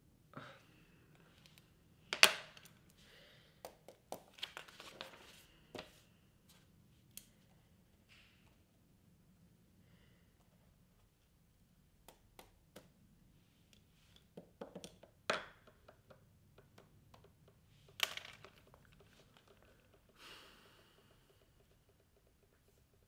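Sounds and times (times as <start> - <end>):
chess pieces tapping on board: 3.6 - 4.6, 14.1 - 23.0.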